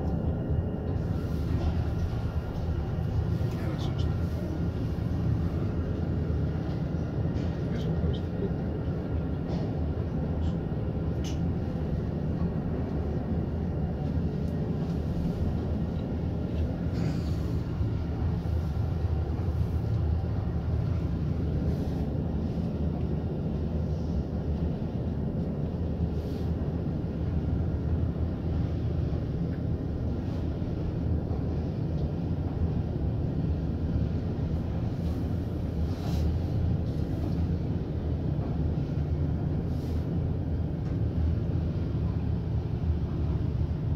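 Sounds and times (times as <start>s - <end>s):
elevator car low rumble: 0.0s - 43.9s.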